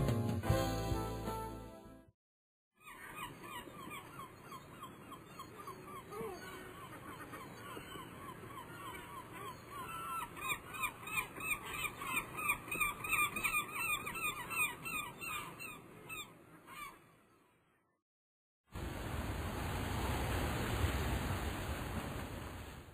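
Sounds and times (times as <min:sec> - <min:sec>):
birds honking: 0:02.8 - 0:17.0.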